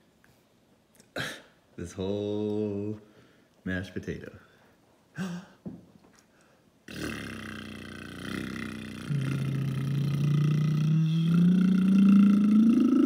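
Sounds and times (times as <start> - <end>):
toddler making long low voice sound: 8.4 - 13.0.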